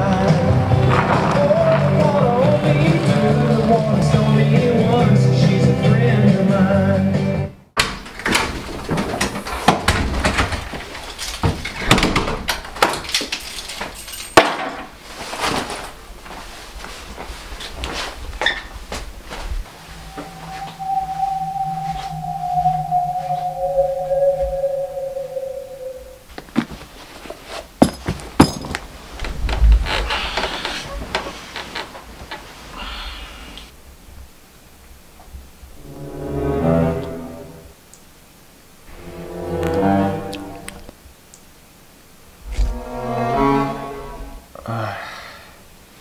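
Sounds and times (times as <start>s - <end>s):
wooden door opening and shutting: 7.8s - 10.8s, 11.4s - 13.2s
bedding rustling: 14.9s - 19.7s
held musical tone: 19.7s - 26.3s, 38.9s - 40.9s.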